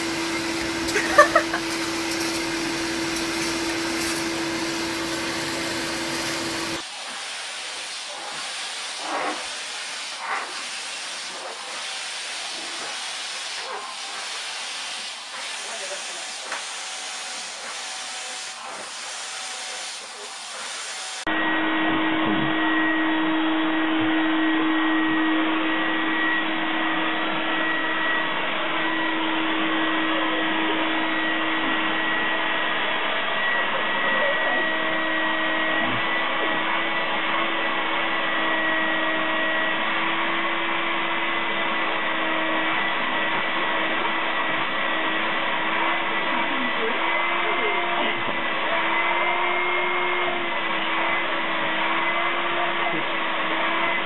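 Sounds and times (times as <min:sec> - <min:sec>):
canister vacuum motor whine: 0:00.0 - 0:07.0, 0:11.3 - 0:54.0
vacuum cleaner airy hiss: 0:00.0 - 0:21.3.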